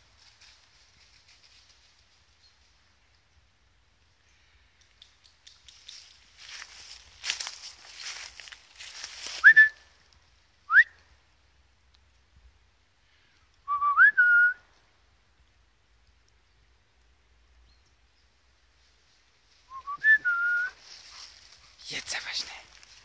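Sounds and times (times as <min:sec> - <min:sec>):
footsteps in dry leaves: 0:05.9 - 0:09.5, 0:20.8 - 0:23.0
person whistling: 0:09.4 - 0:09.8, 0:13.7 - 0:14.6, 0:19.7 - 0:20.8.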